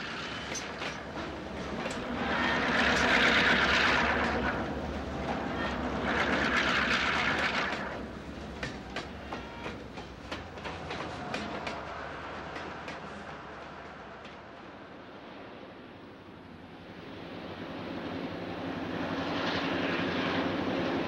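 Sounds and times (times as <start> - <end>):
train wheels clicking over rail joints: 0.0 - 14.8
diesel locomotive engines: 0.0 - 21.0.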